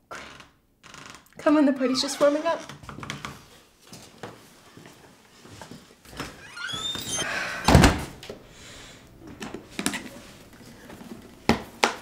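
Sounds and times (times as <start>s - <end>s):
door hinges squeaking: 1.8s - 2.8s, 6.2s - 8.0s
door shutting with heavy thud: 6.6s - 8.2s.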